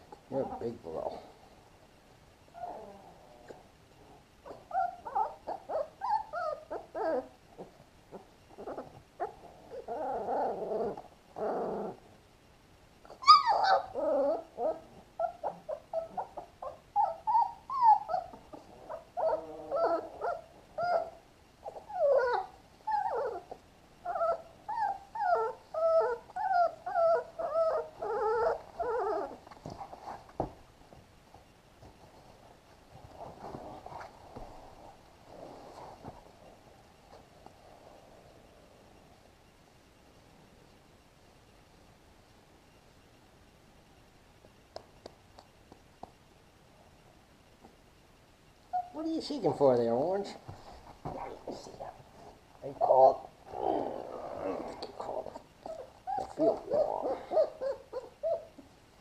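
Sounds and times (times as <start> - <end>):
puppies whimpering: 13.1 - 29.4, 54.4 - 58.6.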